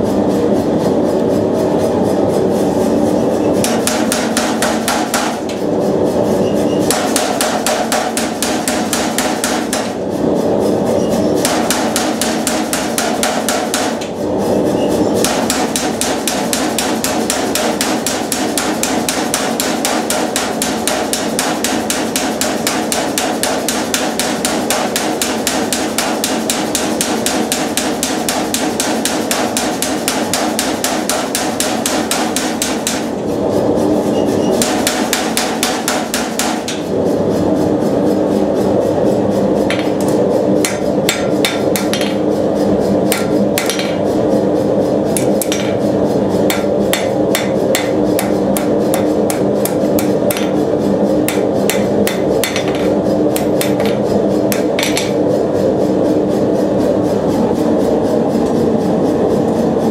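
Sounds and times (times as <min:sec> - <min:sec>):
power hammer pounding iron: 0:03.6 - 0:05.6, 0:06.8 - 0:10.0, 0:11.3 - 0:14.2, 0:15.1 - 0:33.2, 0:34.4 - 0:36.9, 0:39.7 - 0:42.3, 0:43.0 - 0:44.2, 0:45.1 - 0:55.2.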